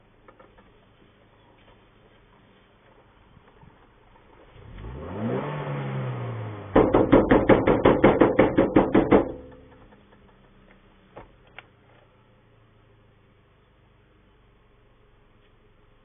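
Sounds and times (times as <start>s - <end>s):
vehicle engine revving: 4.2s - 9.9s.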